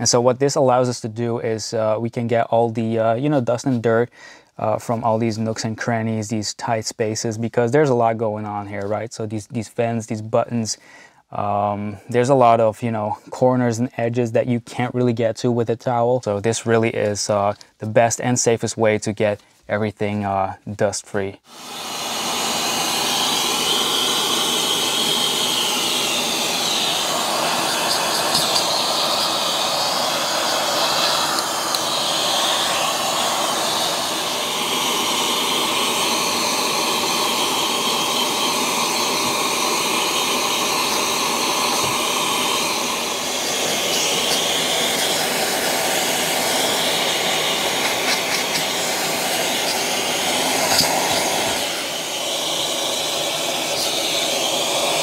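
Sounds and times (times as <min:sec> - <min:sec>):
vacuum cleaner running: 0:21.4 - 0:55.0.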